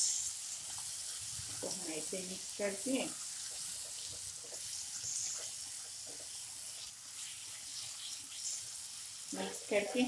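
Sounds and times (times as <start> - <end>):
food sizzling in a frying pan: 0.0 - 10.0
spatula scraping a pan: 2.9 - 10.0.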